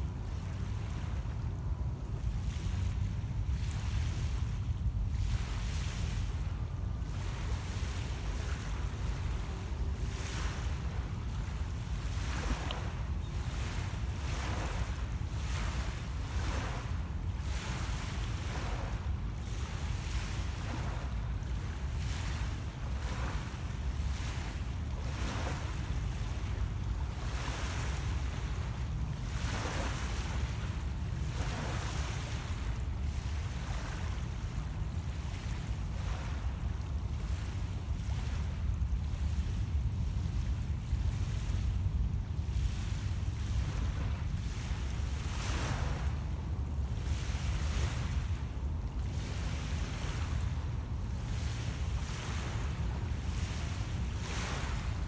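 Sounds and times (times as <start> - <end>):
waves lapping on pebble beach: 0.0 - 55.0
wind rumble on microphone: 0.0 - 55.0.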